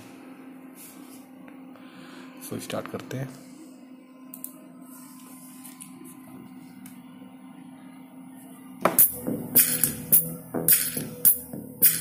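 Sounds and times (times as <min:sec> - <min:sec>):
low hum: 0:03.4 - 0:12.0
music from portable speaker: 0:08.9 - 0:12.0.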